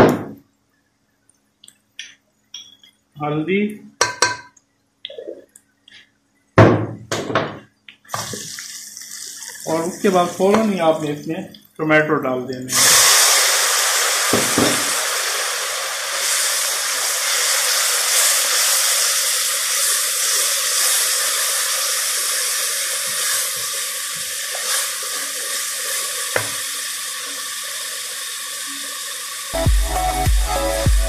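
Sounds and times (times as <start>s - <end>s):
spoon knocking on pot: 4.0s - 4.5s
tomatoes sizzling in hot oil: 8.1s - 11.4s, 12.6s - 30.7s.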